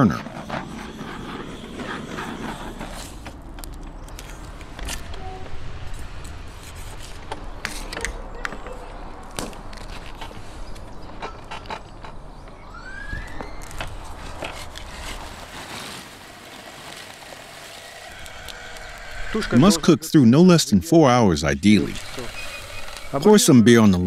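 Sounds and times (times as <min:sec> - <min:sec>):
wire creaking: 0:13.1 - 0:19.9, 0:21.8 - 0:23.3.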